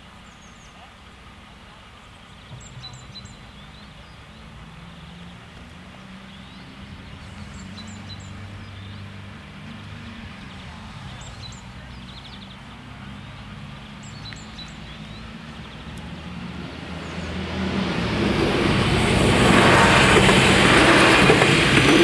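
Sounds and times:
small birds chirping: 0:00.0 - 0:17.6
diesel railcar engine hum: 0:00.0 - 0:22.0.

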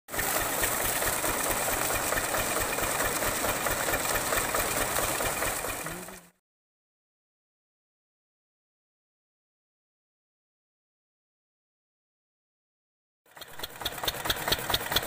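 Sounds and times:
diesel engine knocking: 0:00.1 - 0:06.2, 0:13.3 - 0:15.0
water gushing from a pipe: 0:00.1 - 0:06.3, 0:13.4 - 0:15.0.

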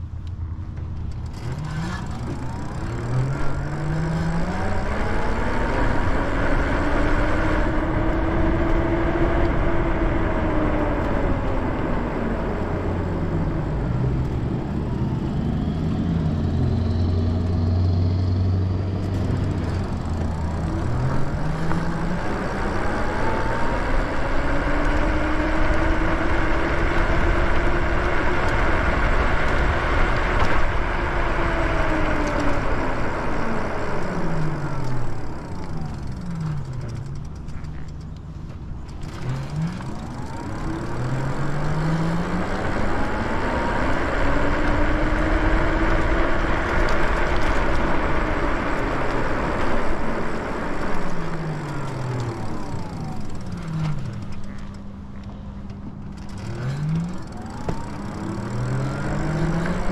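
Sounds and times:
electric motor whining: 0:15.0 - 0:59.9.

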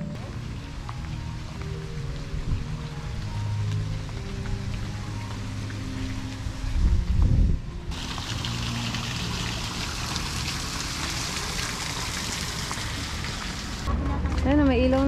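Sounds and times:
waterfall splashing: 0:07.9 - 0:13.9.

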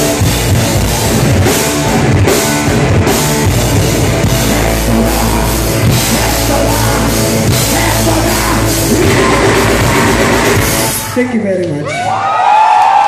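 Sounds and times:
rock band playing live: 0:00.0 - 0:11.7
person singing: 0:04.4 - 0:11.2.

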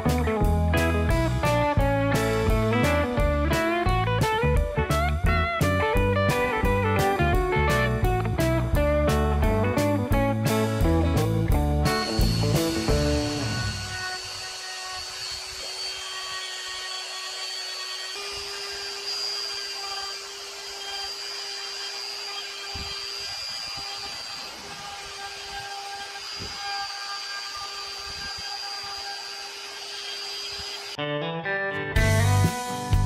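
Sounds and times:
die grinder whining cutting wood: 0:00.8 - 0:04.5, 0:10.4 - 0:31.0.

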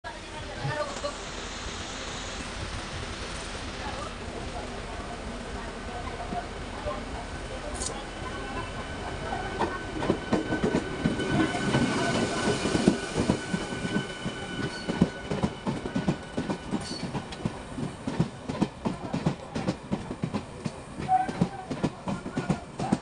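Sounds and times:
train wheels clicking over joints: 0:09.5 - 0:23.0.

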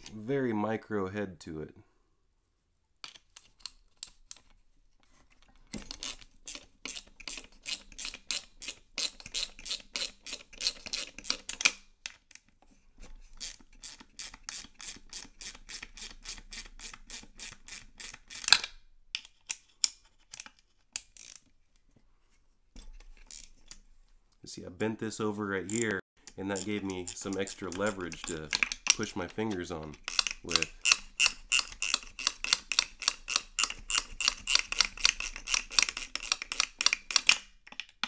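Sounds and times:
ratchet clicking: 0:26.2 - 0:37.4.

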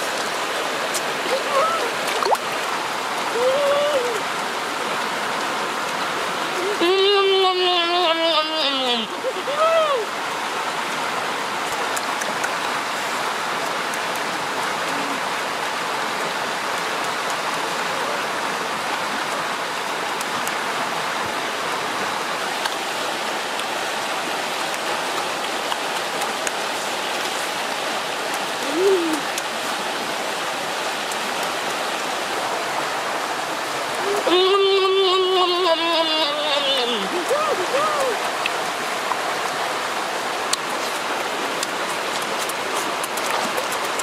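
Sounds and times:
person humming: 0:03.3 - 0:04.3, 0:06.5 - 0:10.1, 0:28.6 - 0:29.3, 0:34.0 - 0:38.2.

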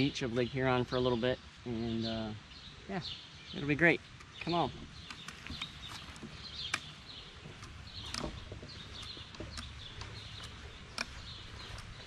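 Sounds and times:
birds chirping: 0:00.0 - 0:12.0
crutches clicking on pavement: 0:04.1 - 0:12.0.

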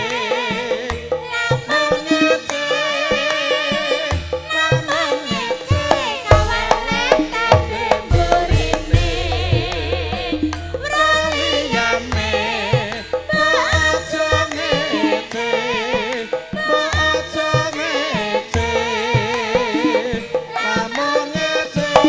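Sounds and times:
high singing voice with vibrato: 0:00.0 - 0:22.0
ringing gamelan tones: 0:05.7 - 0:16.0
hand drum strokes: 0:05.8 - 0:15.1.

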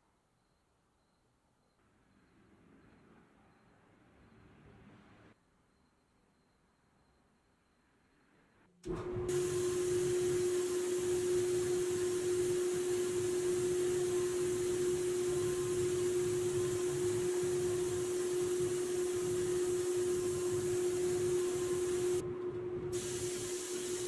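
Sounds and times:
constant hum: 0:08.9 - 0:24.0
spray gun airy hiss: 0:09.3 - 0:22.2, 0:22.9 - 0:24.0.

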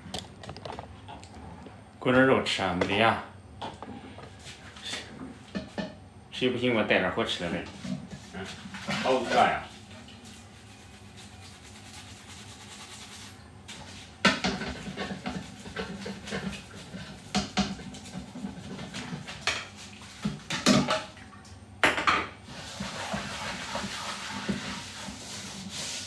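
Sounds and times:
kitchenware clattering: 0:14.3 - 0:21.1.

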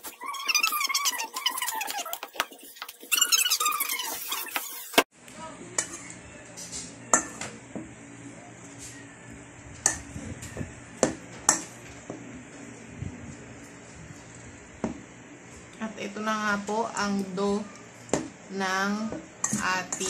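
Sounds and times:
spoon stirring dough in bowl: 0:00.0 - 0:05.0, 0:05.8 - 0:07.6, 0:19.1 - 0:20.0.

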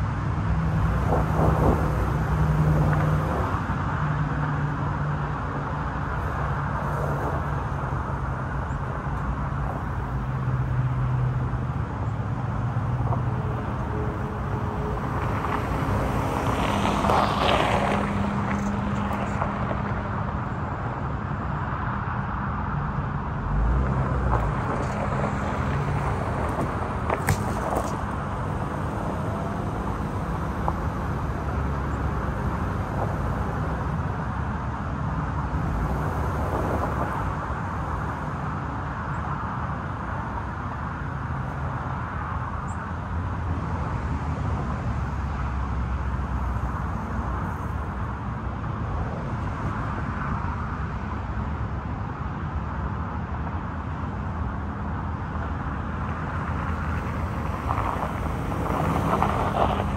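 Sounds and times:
car engine and tyres rumbling: 0:00.0 - 0:59.9
gravel crunching under tyres: 0:23.5 - 0:33.4.

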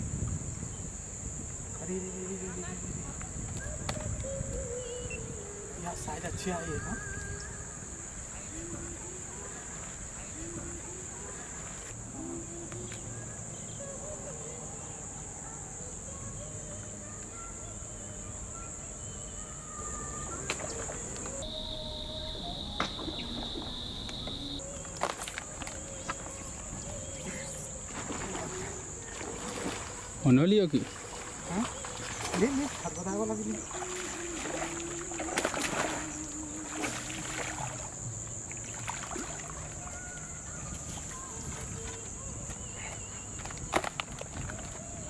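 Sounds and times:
steady high hiss: 0:00.0 - 0:44.0
insects trilling: 0:00.0 - 0:45.0
lure splashing through water: 0:27.6 - 0:40.2.

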